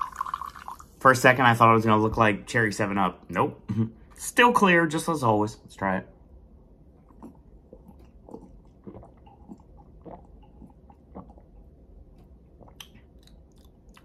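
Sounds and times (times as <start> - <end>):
person gulping a drink: 0.0 - 0.9, 6.9 - 14.0.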